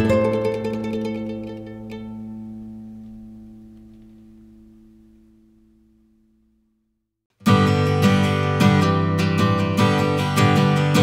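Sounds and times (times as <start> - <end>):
harp-like plucked strings music: 0.0 - 4.8, 7.4 - 11.0.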